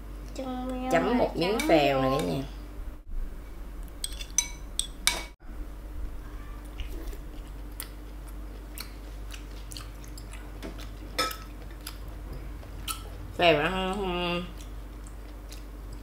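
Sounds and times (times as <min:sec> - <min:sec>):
chewing mouth sounds: 0:06.7 - 0:13.3, 0:14.5 - 0:16.0.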